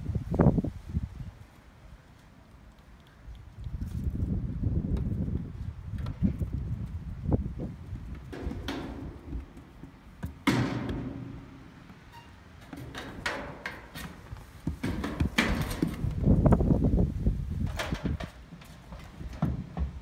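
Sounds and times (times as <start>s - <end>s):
goats knocking on metal panels: 8.1s - 11.7s, 12.7s - 16.3s
hooves stepping on wooden floor: 12.6s - 16.6s.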